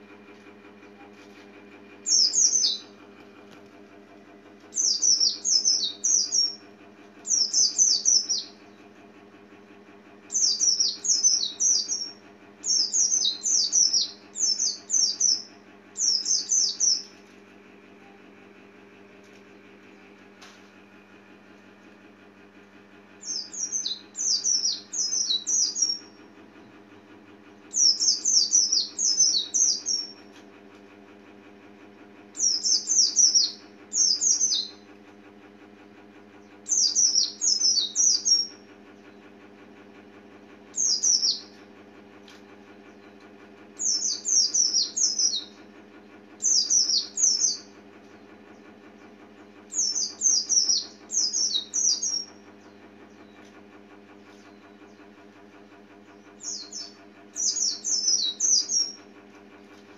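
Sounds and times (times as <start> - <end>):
faint steady hum: 0.0 - 35.4
bird chirping song: 2.0 - 2.9, 4.7 - 6.6, 7.2 - 8.7, 10.3 - 17.2, 23.2 - 26.2, 27.7 - 30.3, 32.4 - 34.8, 36.4 - 39.1, 40.7 - 41.6, 43.8 - 45.6, 46.4 - 48.7, 49.7 - 53.5, 56.2 - 59.8.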